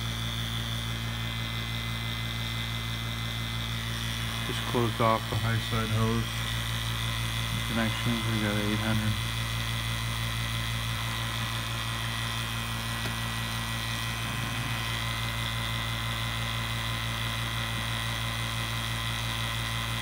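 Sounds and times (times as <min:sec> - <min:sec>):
vacuum pump humming: 0:00.0 - 0:20.0.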